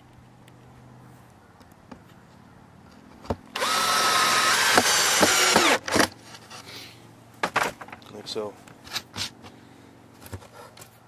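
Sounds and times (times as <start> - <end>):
cordless drill driving a screw: 3.6 - 6.1
drill click: 3.6 - 6.1.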